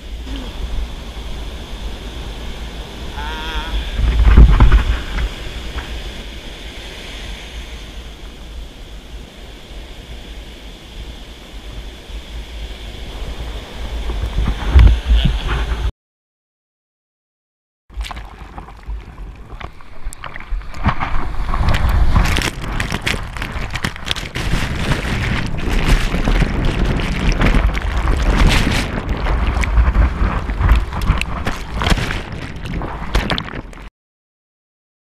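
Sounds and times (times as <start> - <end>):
wind rumble on microphone: 0.0 - 15.9, 18.0 - 33.9
sea water splashing: 17.9 - 33.9.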